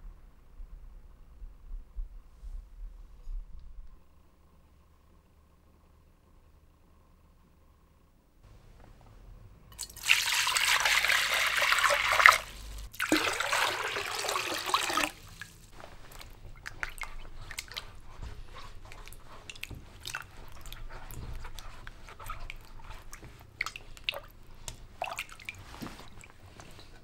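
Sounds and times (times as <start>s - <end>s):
water pouring into metal bowl: 9.8s - 15.6s
water splashing and sloshing: 9.8s - 27.0s.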